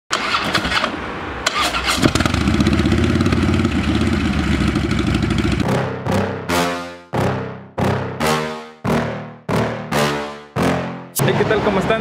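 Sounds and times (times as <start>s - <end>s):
motorcycle engine starting and idling: 0.1s - 5.7s.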